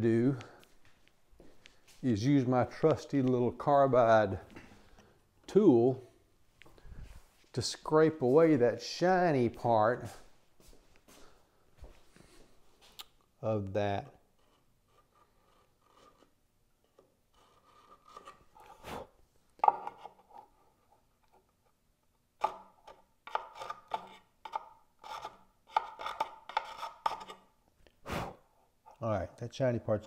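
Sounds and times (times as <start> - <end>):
hand scraper scraping wood: 14.4 - 19.1, 22.5 - 27.5.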